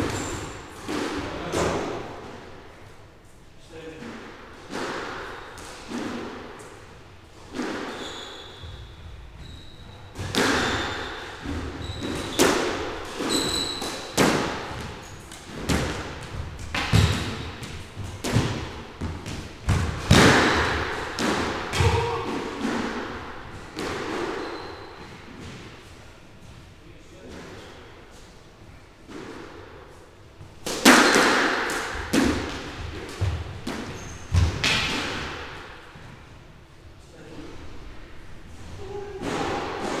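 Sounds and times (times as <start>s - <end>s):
squash ball hitting rackets and walls: 0.0s - 2.6s, 3.9s - 26.6s, 29.0s - 36.2s, 38.6s - 40.0s
shoe squeaks on court floor: 0.1s - 0.7s, 7.7s - 14.2s, 24.2s - 25.2s, 33.8s - 34.4s.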